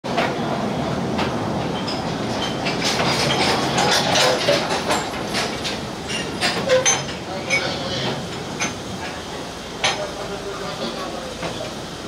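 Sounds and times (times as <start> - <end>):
train carriages clacking on rails: 0.1 - 9.2.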